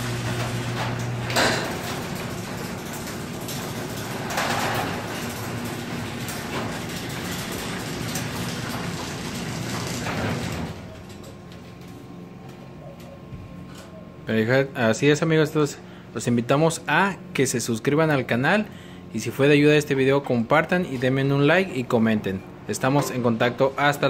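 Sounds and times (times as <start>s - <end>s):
garage door clunks: 0.0s - 11.8s
garage door rattling: 0.0s - 12.0s
garage door opener motor humming: 0.0s - 24.0s.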